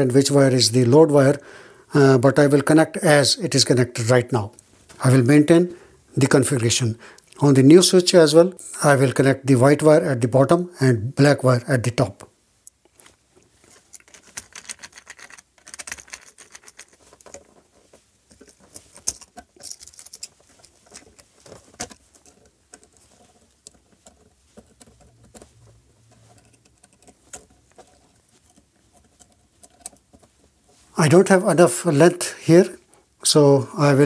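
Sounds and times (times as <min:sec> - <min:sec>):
pliers clicking and scratching wires: 0:18.3 - 0:25.5.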